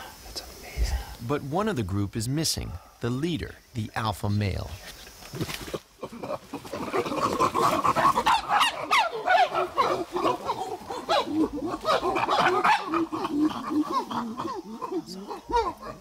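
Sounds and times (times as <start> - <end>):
chimpanzees calling: 6.0 - 16.0.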